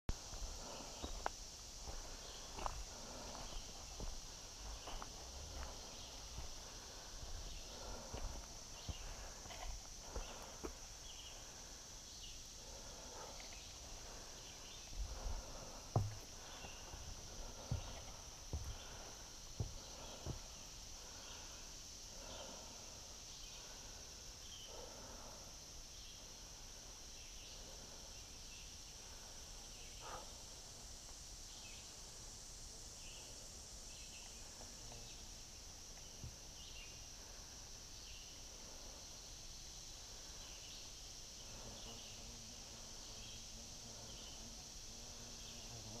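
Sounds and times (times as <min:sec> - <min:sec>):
high-pitched insect drone: 0:00.1 - 0:46.0
soft knocks: 0:16.0 - 0:16.2.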